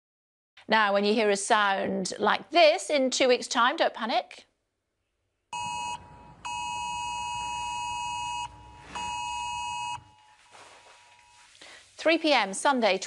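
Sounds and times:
phone emergency alert tone: 5.6 - 11.5.

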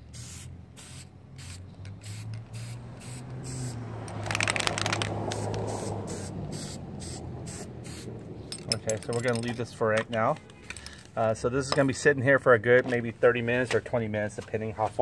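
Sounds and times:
aerosol spray hissing in bursts: 0.0 - 3.8, 5.3 - 8.1
rattling clatter: 8.4 - 10.0.

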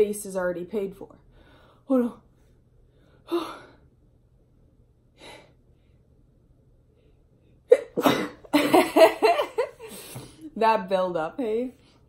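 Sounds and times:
woman laughing tearfully: 8.5 - 10.0.

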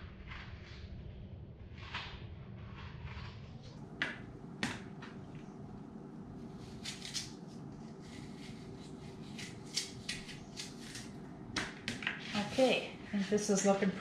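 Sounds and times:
faint steady hum: 0.0 - 14.0
knife cutting apple: 6.4 - 12.6.

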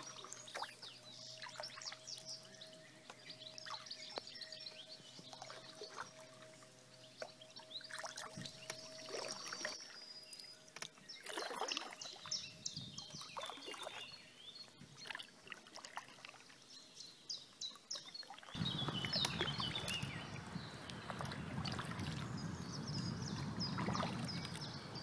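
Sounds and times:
small birds chirping: 0.0 - 25.0
paddle strokes splashing water: 5.2 - 16.6, 17.7 - 25.0.

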